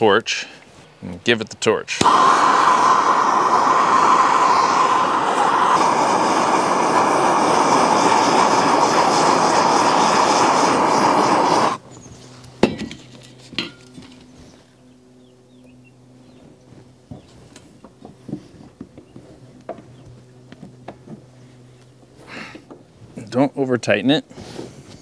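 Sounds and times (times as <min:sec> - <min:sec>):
gas torch burning: 0:01.9 - 0:11.8.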